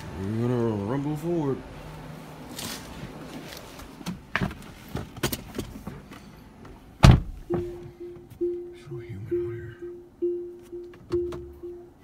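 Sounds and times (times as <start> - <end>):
car door thump shut: 7.0 - 7.7
steady car audio tone: 7.2 - 12.0.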